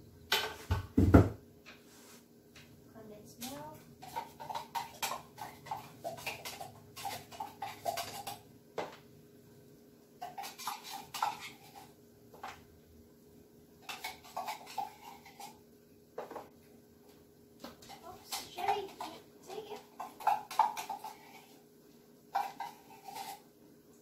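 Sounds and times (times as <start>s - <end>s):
metal utensils clinking against cans: 3.4s - 8.4s, 10.2s - 11.9s, 13.8s - 15.6s, 17.8s - 21.5s, 22.3s - 23.4s.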